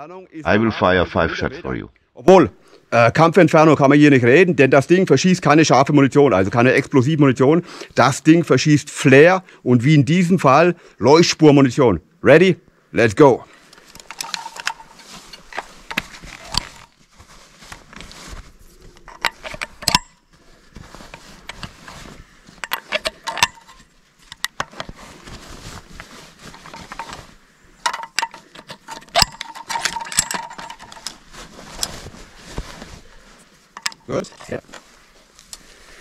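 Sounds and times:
metallic clicks and rattles: 0:13.7 - 0:16.9, 0:18.9 - 0:20.2, 0:22.6 - 0:24.9, 0:27.8 - 0:31.2, 0:33.8 - 0:34.8.

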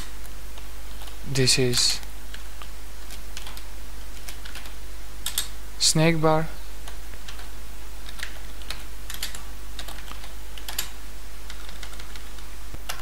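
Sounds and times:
steady low hum: 0:00.0 - 0:13.0
typing on computer keyboard: 0:03.1 - 0:03.6, 0:04.2 - 0:05.5, 0:06.9 - 0:13.0.

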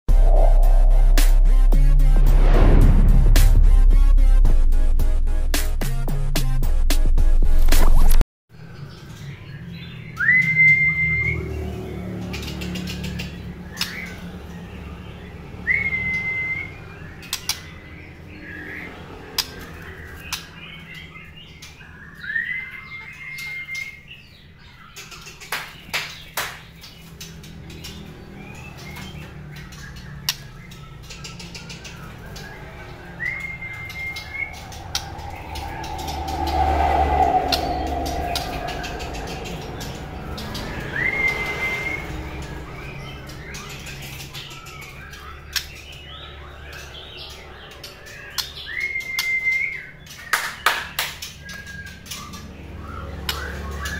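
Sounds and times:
bird whistling: 0:10.1 - 0:11.4, 0:15.6 - 0:17.2, 0:32.0 - 0:42.2.

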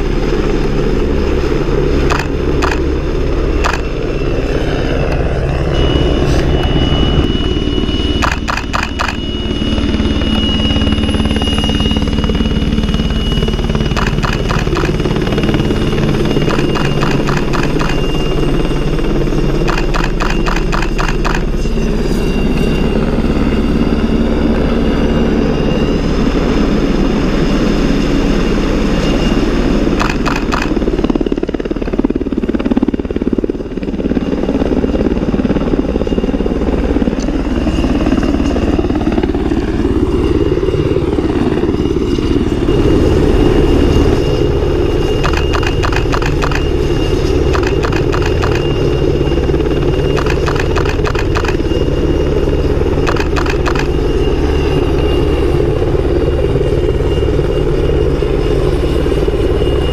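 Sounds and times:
helicopter rotor rumble: 0:00.0 - 0:59.9
helicopter turbine whine: 0:00.0 - 0:59.9
rapid rotor chopping: 0:02.0 - 0:04.2, 0:08.2 - 0:09.4, 0:12.2 - 0:21.9, 0:30.0 - 0:31.2, 0:45.1 - 0:54.3.

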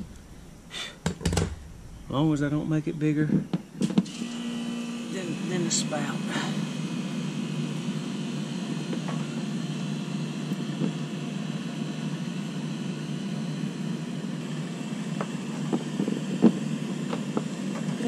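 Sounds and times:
low background drone: 0:00.0 - 0:03.9
fitting knocking on plastic hull: 0:01.0 - 0:01.6.

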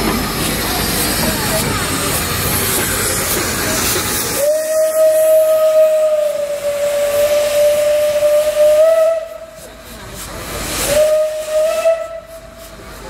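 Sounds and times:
steam hiss: 0:00.0 - 0:13.0
steam locomotive whistle: 0:04.2 - 0:09.8, 0:10.6 - 0:12.8.

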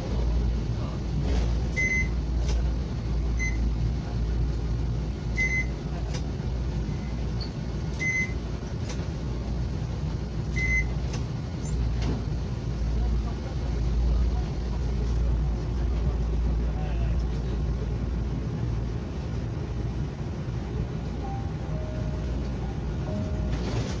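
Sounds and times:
tram low hum: 0:00.0 - 0:24.0
card reader beeps: 0:01.7 - 0:02.2, 0:03.4 - 0:03.7, 0:05.4 - 0:05.8, 0:08.0 - 0:08.4, 0:10.5 - 0:11.0.

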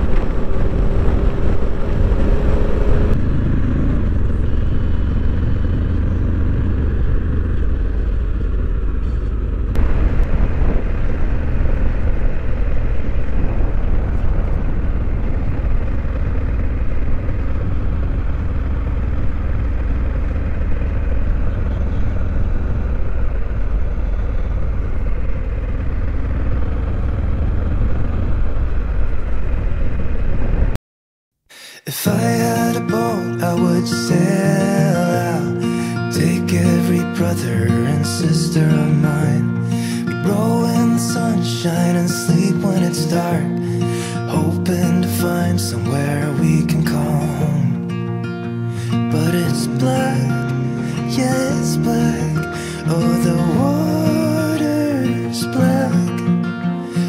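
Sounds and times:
motorcycle engine rumble: 0:00.0 - 0:30.8
road and wind noise: 0:00.0 - 0:30.8.

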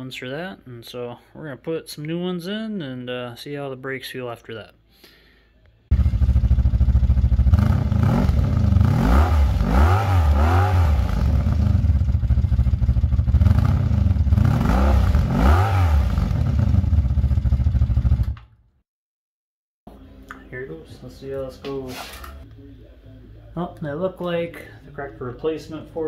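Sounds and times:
vehicle engine revving: 0:05.9 - 0:18.2.

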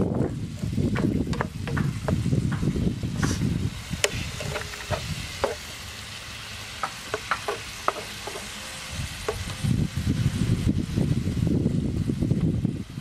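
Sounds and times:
frying sizzle: 0:00.0 - 0:13.0
spatula scraping frying pan: 0:00.5 - 0:02.3, 0:04.0 - 0:09.6.

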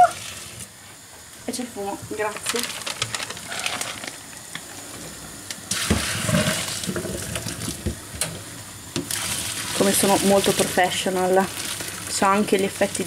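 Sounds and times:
water pouring into a sink: 0:00.0 - 0:00.7, 0:05.7 - 0:08.0, 0:09.0 - 0:13.0.

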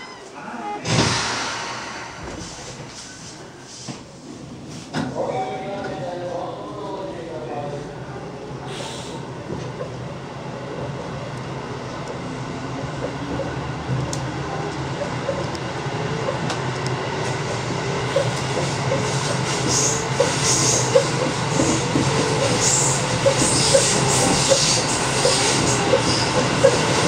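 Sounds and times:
electric train hum: 0:09.2 - 0:27.0
wheel hiss and squeal: 0:22.5 - 0:27.0.

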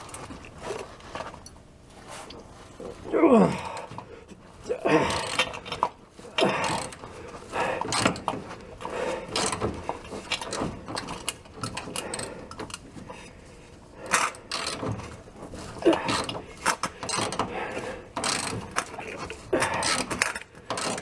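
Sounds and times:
wrench clicking on metal: 0:14.1 - 0:14.8, 0:18.2 - 0:19.0, 0:19.6 - 0:21.0.

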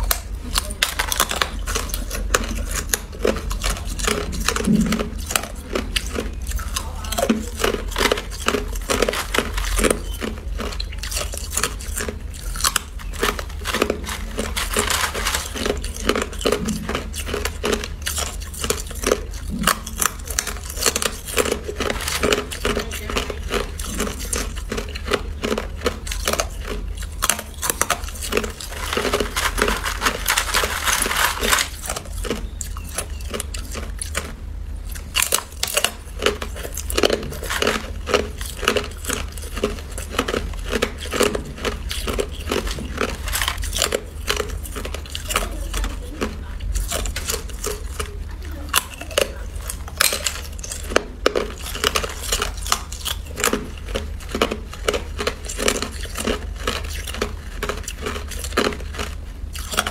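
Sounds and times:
ice crunched and chewed: 0:00.0 - 0:59.9
low steady hum: 0:00.0 - 0:59.9.

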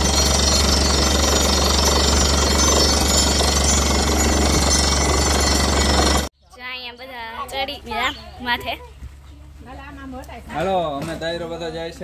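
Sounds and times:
loud mechanical clatter: 0:00.0 - 0:06.3.

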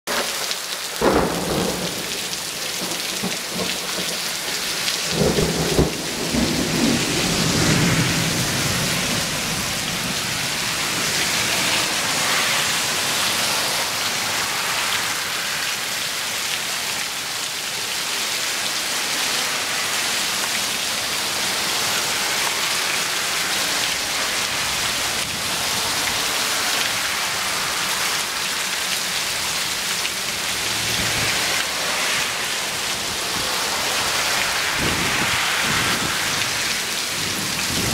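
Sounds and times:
heavy rain on paving and lawn: 0:00.0 - 0:37.9
thunder rumbling: 0:01.0 - 0:04.4, 0:05.0 - 0:13.0, 0:30.4 - 0:37.9.

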